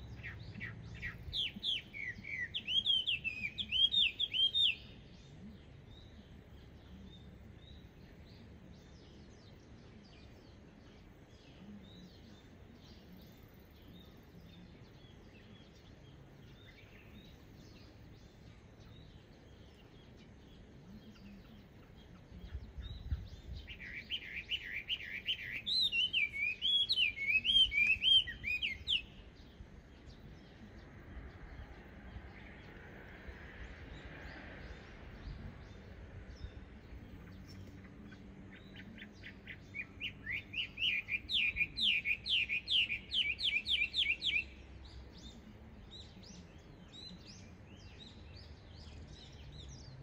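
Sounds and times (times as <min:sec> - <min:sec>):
bird singing whistled phrases: 0:01.0 - 0:05.0, 0:23.8 - 0:29.2, 0:39.8 - 0:44.6.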